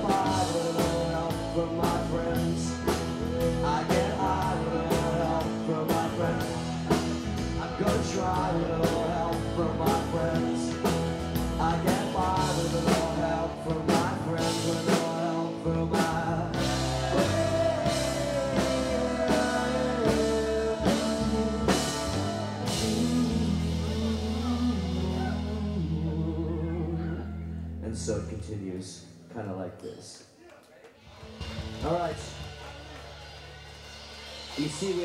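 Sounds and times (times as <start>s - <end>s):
drum kit beat: 0.0s - 26.2s, 31.1s - 35.0s
electric guitar: 0.0s - 27.9s
electric bass: 0.0s - 29.3s, 31.1s - 35.0s.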